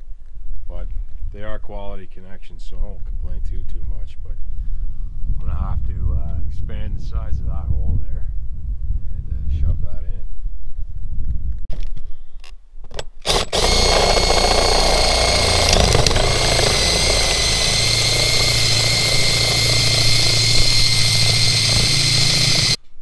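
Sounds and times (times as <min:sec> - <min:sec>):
drill bit boring through siding: 0:12.9 - 0:22.8
cordless drill whining: 0:13.0 - 0:22.8.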